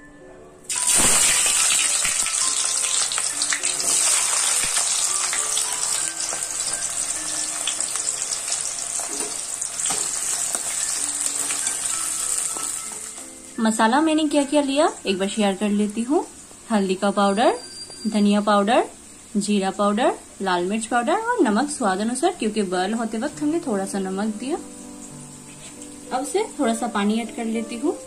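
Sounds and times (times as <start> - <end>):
onions sizzling in hot oil: 0.7 - 15.3, 20.6 - 28.0.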